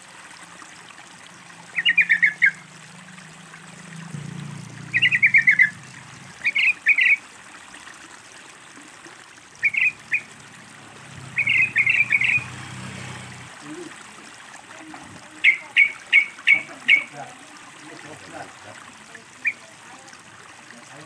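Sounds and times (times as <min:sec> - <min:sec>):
faint water trickling: 0:00.0 - 0:21.0
bird singing bubbly phrases: 0:01.6 - 0:02.8, 0:03.9 - 0:07.3, 0:09.5 - 0:10.6, 0:11.2 - 0:20.2.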